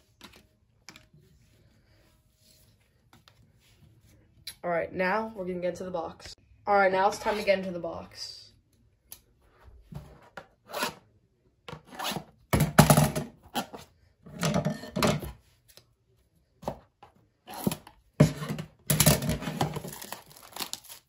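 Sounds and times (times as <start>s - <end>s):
scissors slitting plastic wrap: 19.1s - 21.0s.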